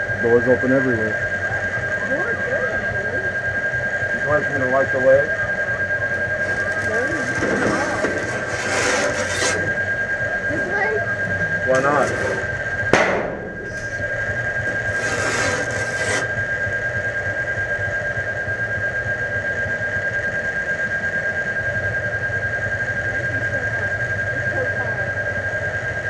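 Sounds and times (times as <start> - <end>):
pulsing low hum: 0.0 - 26.0
steady high-pitched tone: 0.0 - 26.0
sharp bang: 11.7 - 15.2.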